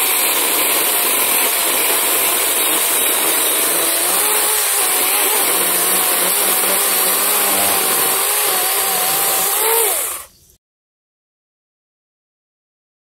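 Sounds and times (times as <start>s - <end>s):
electric chainsaw cutting wood: 0.0s - 10.3s.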